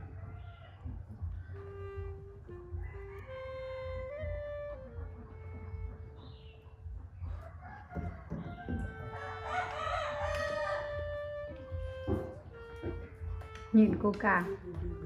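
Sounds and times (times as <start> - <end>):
background music with held notes: 0.0 - 15.0
rooster crowing: 2.7 - 4.0, 7.2 - 11.2.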